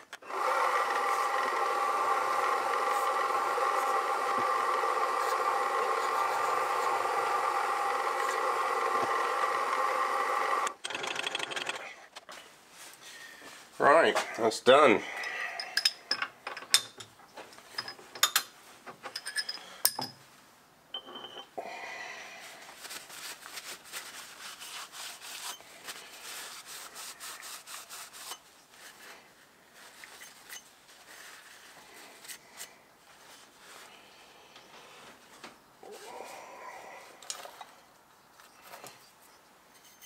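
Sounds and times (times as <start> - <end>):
cloth rag rubbing metal: 22.8 - 29.2.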